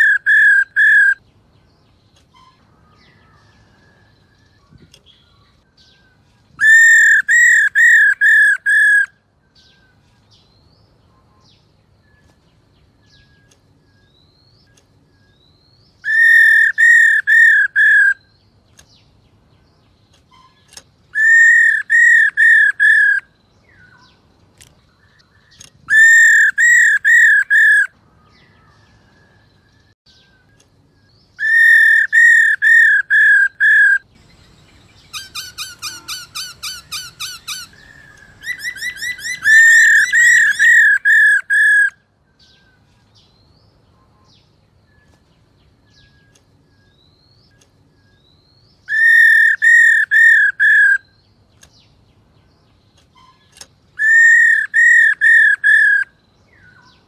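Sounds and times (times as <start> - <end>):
bird harsh calls: 0.0 - 1.3, 2.2 - 10.0, 13.1 - 18.4, 20.2 - 24.2, 25.0 - 29.2, 31.3 - 42.8, 48.8 - 51.2, 53.1 - 57.0.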